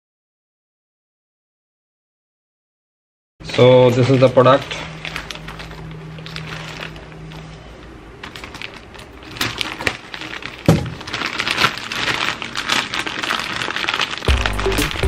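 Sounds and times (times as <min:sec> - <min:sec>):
plastic bag crinkling: 0:03.5 - 0:15.0
background music: 0:14.3 - 0:15.0.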